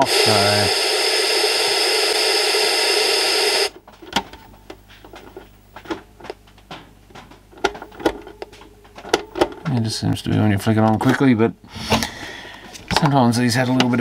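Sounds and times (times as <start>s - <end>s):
tv static hiss: 0.0s - 3.9s.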